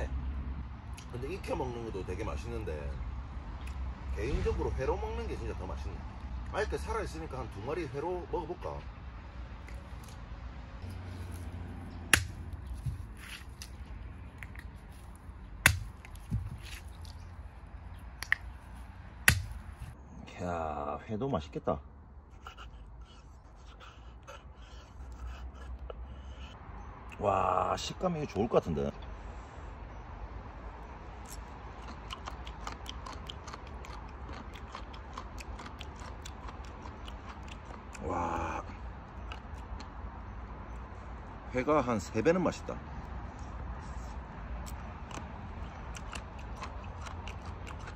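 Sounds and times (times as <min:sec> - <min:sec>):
crisp chewing clicks: 0:10.9 - 0:19.6, 0:31.2 - 0:38.0, 0:39.0 - 0:40.0, 0:44.6 - 0:47.9
stone cracking shell: 0:15.6 - 0:16.9, 0:19.3 - 0:19.7.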